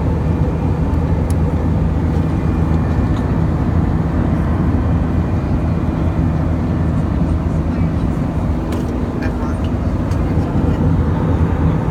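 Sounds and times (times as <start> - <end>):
jet engines rumbling: 0.0 - 11.9.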